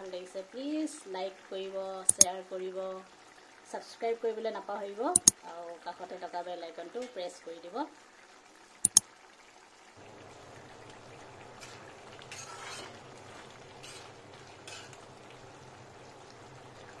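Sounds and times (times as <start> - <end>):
curry simmering with low hiss: 0.0 - 17.0
metal ladle scraping a pan: 11.6 - 13.1, 13.8 - 14.1.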